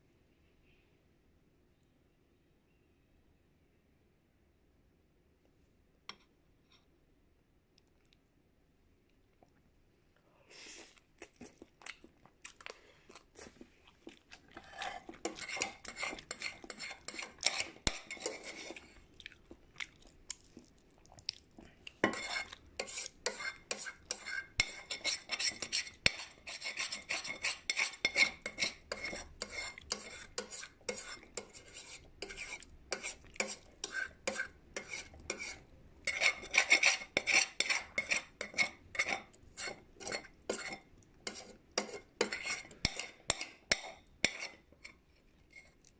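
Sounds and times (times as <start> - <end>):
utensil scraping against a dish: 14.6 - 19.0, 22.0 - 45.9.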